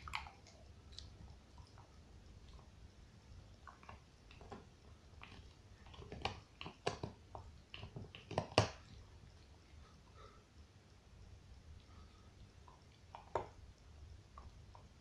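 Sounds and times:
dog gnawing on bone: 3.6s - 9.0s.

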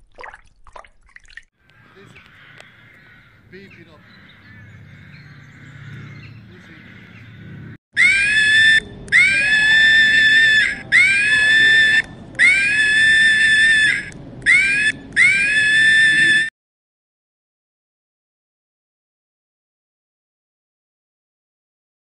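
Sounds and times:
high-pitched animal screams: 8.0s - 16.5s.

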